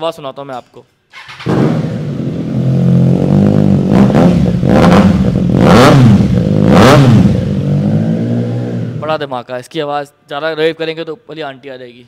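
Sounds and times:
motorcycle engine idling and revving: 1.2s - 9.1s.

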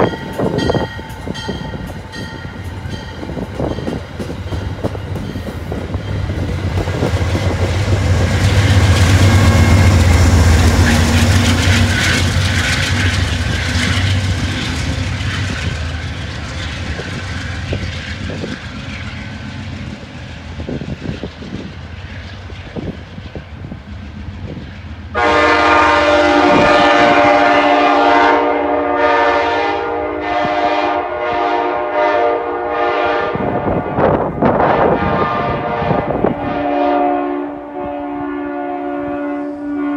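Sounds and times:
train rumbling: 0.0s - 39.9s
train horn blast: 25.1s - 39.9s.

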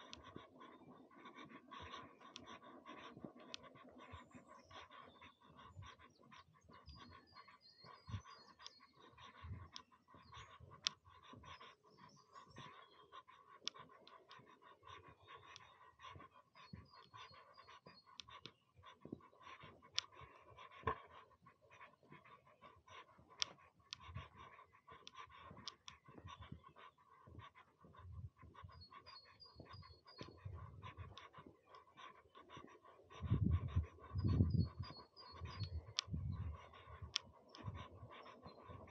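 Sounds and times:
bird chirping: 0.0s - 38.9s
wind buffeting microphone: 25.5s - 31.5s, 33.1s - 38.9s.

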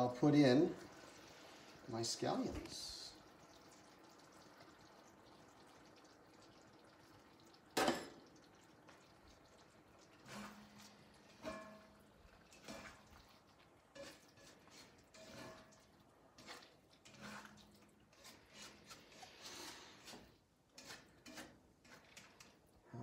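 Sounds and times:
spatula scraping in a wok: 10.2s - 11.8s, 12.4s - 13.3s, 13.9s - 22.6s.

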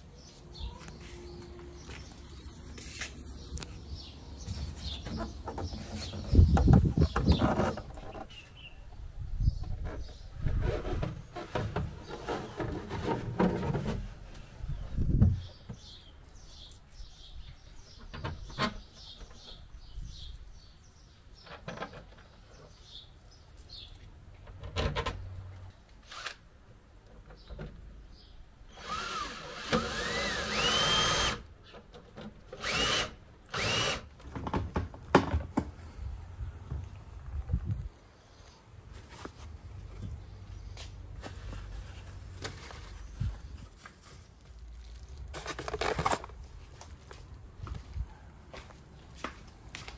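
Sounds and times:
cordless drill whining: 28.7s - 31.4s, 32.5s - 34.1s.

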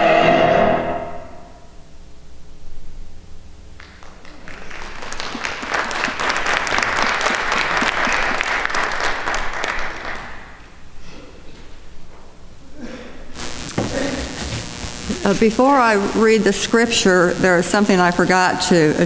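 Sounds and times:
audience applauding: 3.8s - 10.6s.

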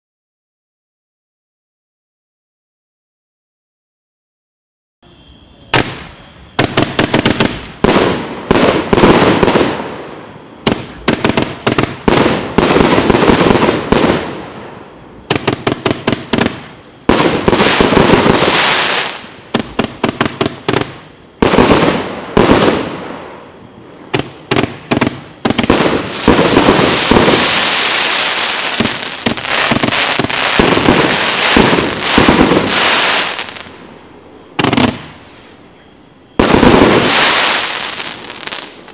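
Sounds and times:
fireworks cake firing: 24.1s - 33.8s.

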